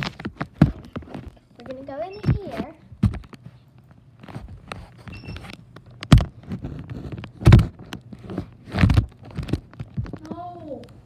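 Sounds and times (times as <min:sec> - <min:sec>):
loud thumps: 0:06.0 - 0:10.2.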